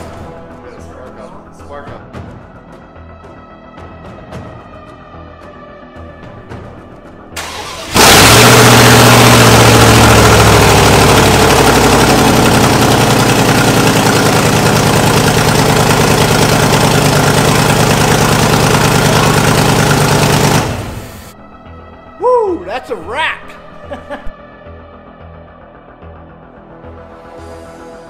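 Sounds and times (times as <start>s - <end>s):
truck engine cranking: 7.3s - 21.4s
truck engine idling: 7.3s - 21.6s.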